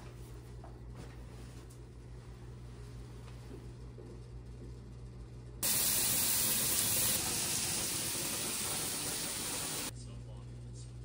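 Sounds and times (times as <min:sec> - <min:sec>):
low steady hum: 0:00.0 - 0:07.1.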